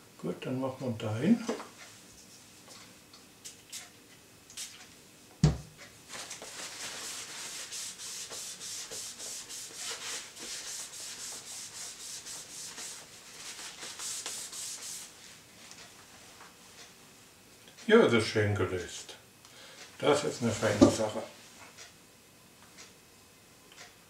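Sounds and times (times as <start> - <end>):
spray bottle sprays: 6.2 - 15.1.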